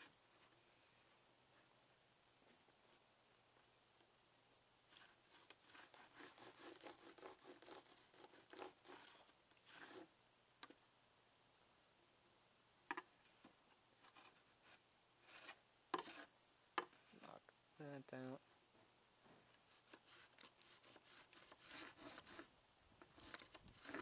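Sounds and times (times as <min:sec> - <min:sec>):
pencil scratching on wood: 0:04.9 - 0:10.1, 0:14.1 - 0:16.3, 0:19.7 - 0:22.5, 0:23.1 - 0:24.0.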